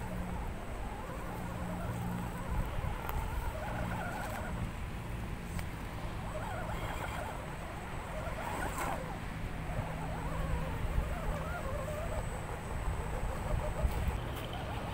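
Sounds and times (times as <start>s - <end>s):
electric motor whirring: 0.0s - 14.9s.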